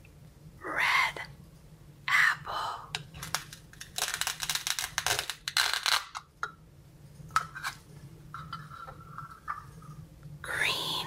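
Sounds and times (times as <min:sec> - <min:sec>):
velcro ripping apart: 0:03.2 - 0:06.2.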